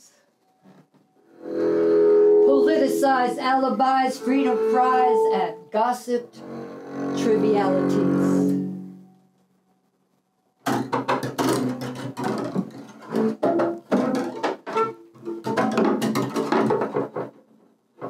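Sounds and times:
bowed double bass: 0:01.4 - 0:09.0.

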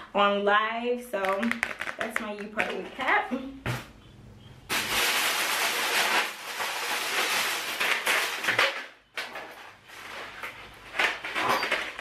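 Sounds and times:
plastic bag rustling and crinkling: 0:04.7 - 0:12.0.

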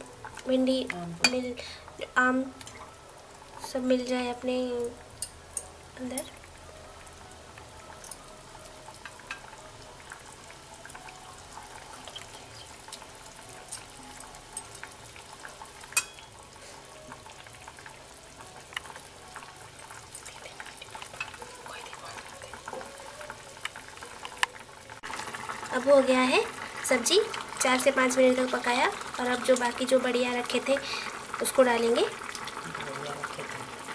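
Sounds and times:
curry bubbling and popping: 0:00.0 - 0:33.9.

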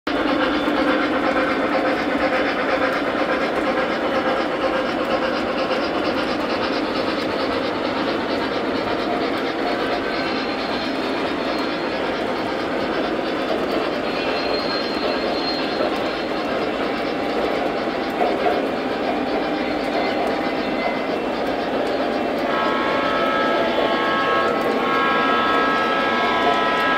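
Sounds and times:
model train wheels clattering: 0:00.1 - 0:26.9
faint high squeal: 0:13.8 - 0:16.6.

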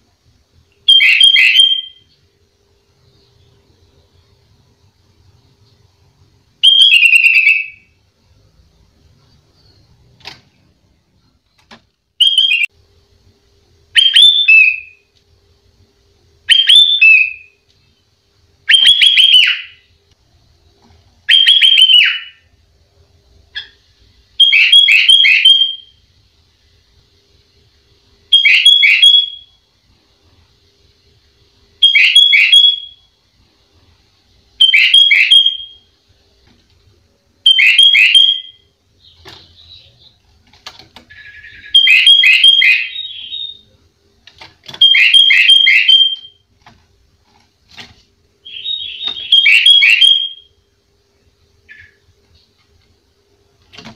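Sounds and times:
bulbul singing whistled notes: 0:48.4 - 0:50.5.

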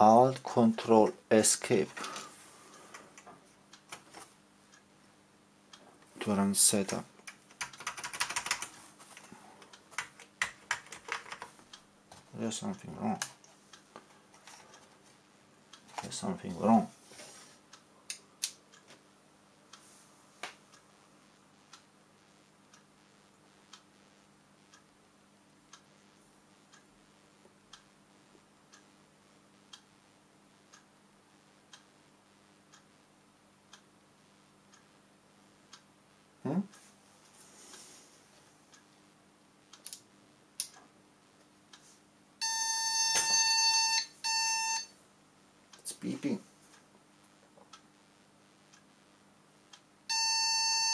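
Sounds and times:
faint steady hum: 0:00.0 - 0:50.9
keyboard keys clicking: 0:07.2 - 0:08.7, 0:10.0 - 0:11.5
computer beeper buzzy beeps: 0:42.4 - 0:45.0, 0:50.1 - 0:50.9.

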